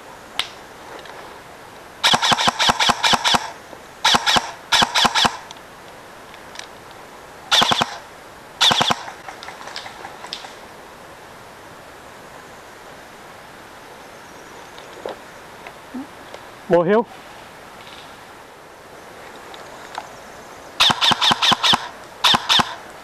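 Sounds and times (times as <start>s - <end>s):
airsoft rifle firing bursts: 2.0s - 5.5s, 7.5s - 8.0s, 8.6s - 9.2s, 20.8s - 22.8s.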